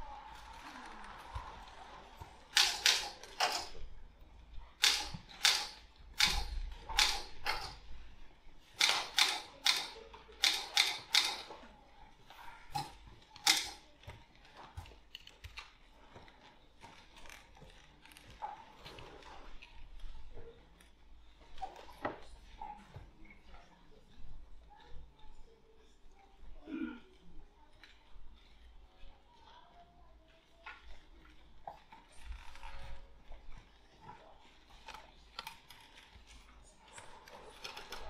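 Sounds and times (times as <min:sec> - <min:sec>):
typewriter keystrokes: 0:04.8 - 0:07.8.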